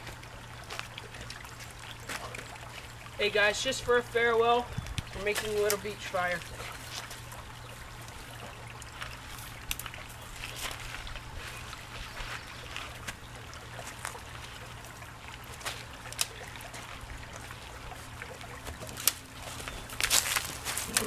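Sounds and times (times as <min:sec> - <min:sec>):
creek trickling: 0:00.0 - 0:21.0
twig fire crackling: 0:08.9 - 0:14.2, 0:15.5 - 0:17.4, 0:18.6 - 0:21.0.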